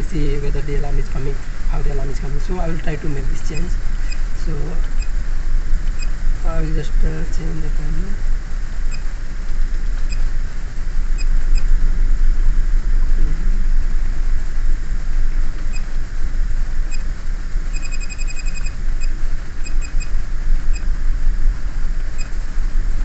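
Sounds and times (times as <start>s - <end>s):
steady low hum: 0.0s - 23.0s
short electronic key beeps: 17.7s - 20.1s.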